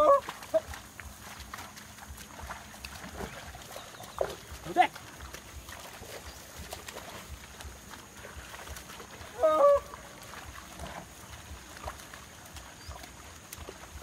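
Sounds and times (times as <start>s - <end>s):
man calling to bulls: 4.6s - 5.0s.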